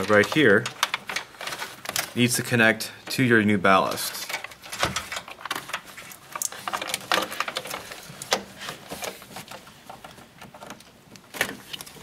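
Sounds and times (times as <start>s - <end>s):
plastic connectors clicking: 0.0s - 3.3s
wire rustling: 0.0s - 12.0s.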